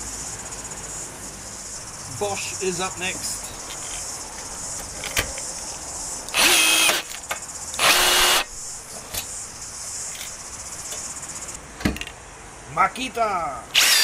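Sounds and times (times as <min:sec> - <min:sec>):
rivet tool motor bursts: 0:06.3 - 0:08.5, 0:13.7 - 0:14.0.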